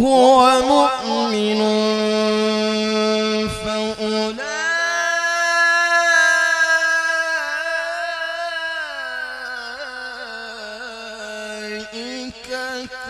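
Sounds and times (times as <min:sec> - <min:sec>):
man reciting melodically: 0:00.0 - 0:13.0.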